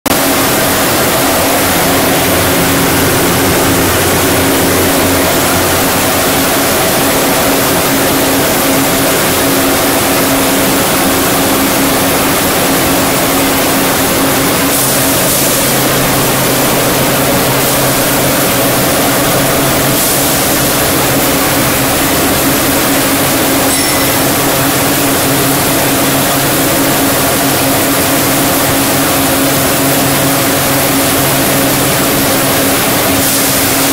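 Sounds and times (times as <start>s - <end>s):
mixer motor drone: 0.1s - 33.9s.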